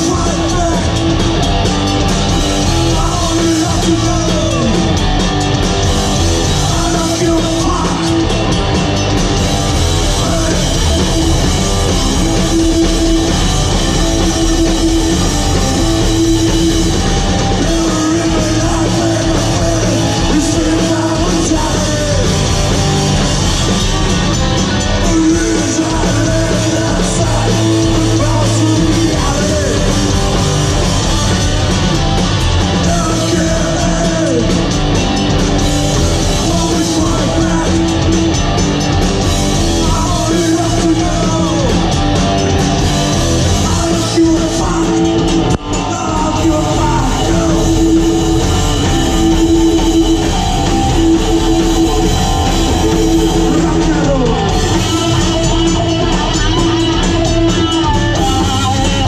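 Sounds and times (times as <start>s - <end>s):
shouted vocals: 0.0s - 5.2s, 9.7s - 23.8s, 35.8s - 38.5s, 39.4s - 59.0s
bass guitar: 0.0s - 59.0s
distorted electric guitar: 0.0s - 59.0s
drums: 0.0s - 59.0s.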